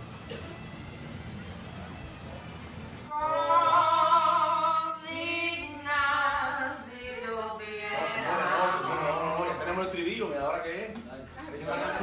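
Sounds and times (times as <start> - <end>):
woman singing: 3.1 - 8.5.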